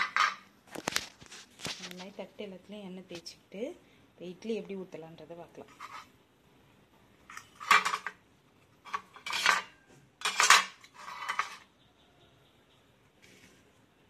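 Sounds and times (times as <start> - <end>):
metal utensils clattering: 0.0 - 0.5, 7.3 - 8.2, 8.9 - 11.7.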